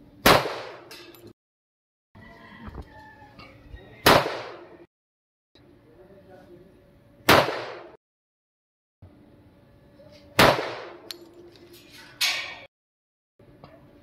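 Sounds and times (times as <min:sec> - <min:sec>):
pistol shots: 0:00.2 - 0:00.9, 0:04.0 - 0:04.7, 0:07.3 - 0:08.0, 0:10.4 - 0:11.1.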